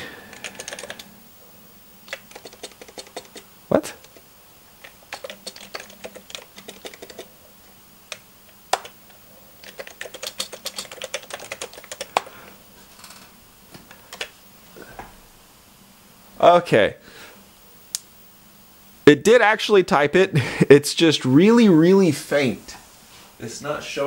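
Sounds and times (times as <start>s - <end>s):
keyboard typing clicks: 0.3s - 1.1s, 2.0s - 4.2s, 4.8s - 7.3s, 8.1s - 12.3s.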